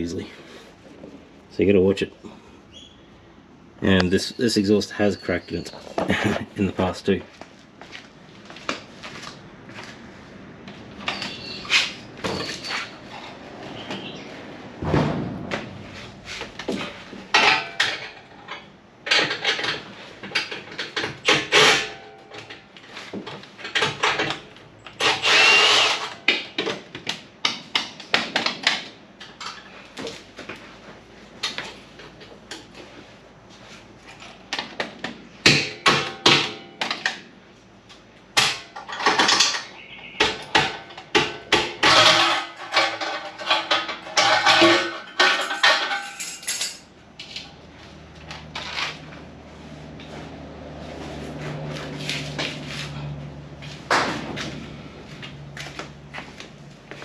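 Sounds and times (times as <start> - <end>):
hand tools knocking on metal parts: 38.4 - 47.5.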